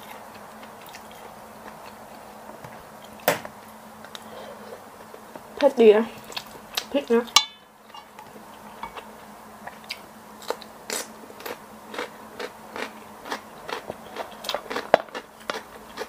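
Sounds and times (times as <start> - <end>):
person chewing food: 0.0 - 2.3, 6.2 - 6.9, 8.5 - 16.0.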